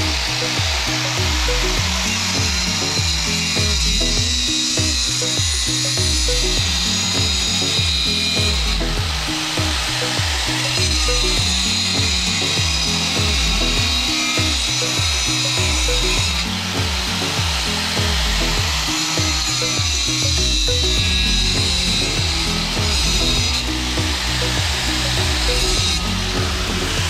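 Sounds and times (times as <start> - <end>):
angle grinder cutting plastic pipe: 0.0 - 27.0
background music with steady beat: 0.0 - 27.0.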